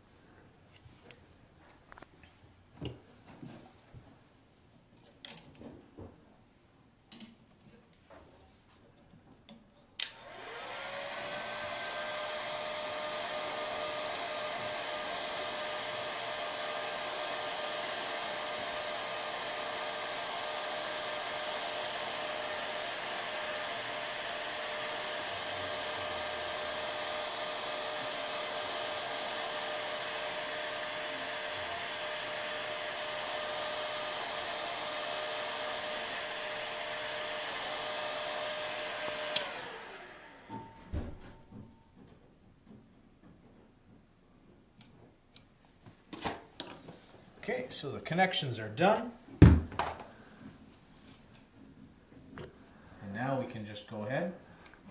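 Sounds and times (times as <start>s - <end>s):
heat gun switch click: 10.0s - 10.2s, 39.3s - 39.6s
heat gun fan whirring: 10.0s - 41.1s.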